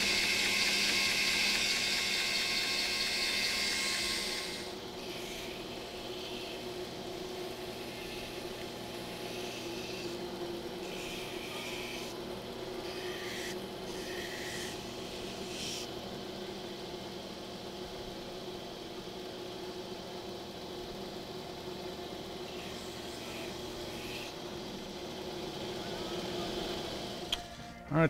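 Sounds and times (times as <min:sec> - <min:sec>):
belt grinder sanding hiss: 0:00.0 - 0:16.0, 0:22.4 - 0:25.7
grinder motor hum: 0:00.0 - 0:28.0.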